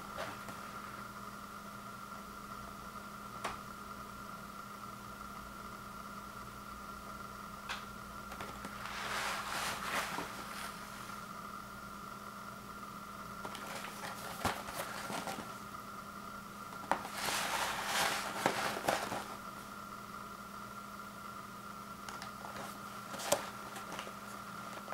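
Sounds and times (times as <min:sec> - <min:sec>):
steady hum: 0:00.0 - 0:24.9
cardboard box rustling: 0:08.7 - 0:10.9, 0:13.5 - 0:15.6, 0:16.9 - 0:19.4, 0:22.4 - 0:24.9.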